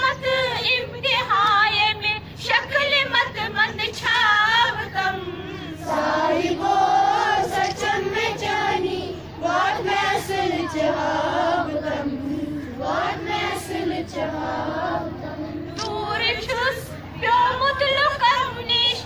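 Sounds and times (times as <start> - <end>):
children singing in unison: 4.3 - 16.2.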